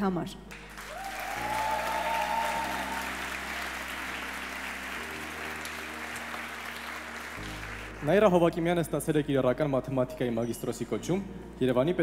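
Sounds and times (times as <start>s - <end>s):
audience applauding: 0.5s - 8.7s.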